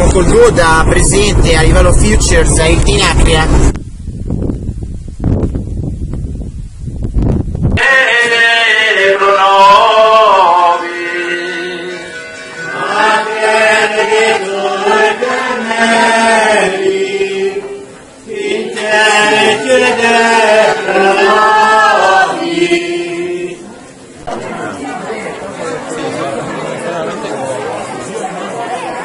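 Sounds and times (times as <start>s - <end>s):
people singing a chanted hymn: 7.8s - 24.0s.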